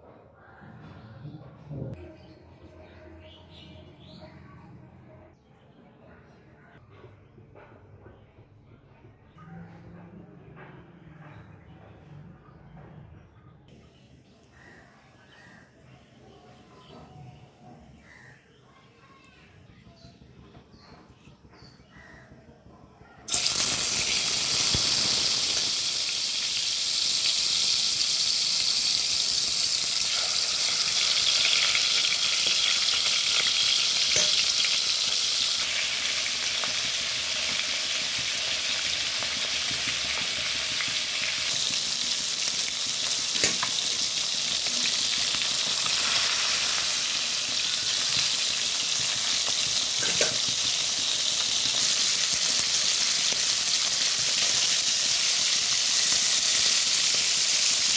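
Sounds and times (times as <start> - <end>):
fish frying in hot oil: 23.3 - 57.9.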